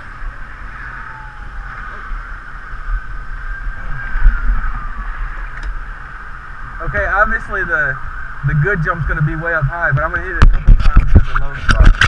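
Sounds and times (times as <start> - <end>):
heavy low thumps: 8.4 - 11.3.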